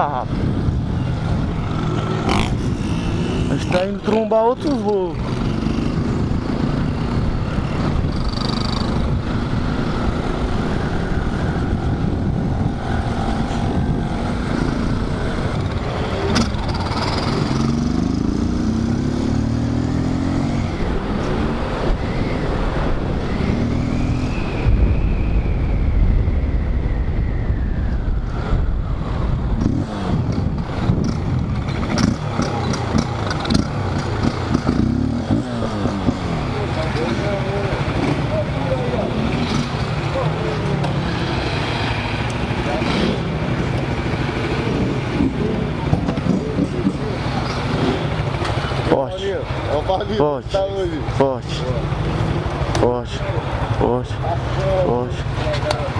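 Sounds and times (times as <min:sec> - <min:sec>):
wind rumbling on microphone: 0:00.0 - 0:04.1, 0:05.2 - 0:36.7
motorcycle engine revving: 0:00.6 - 0:24.7, 0:28.2 - 0:55.9.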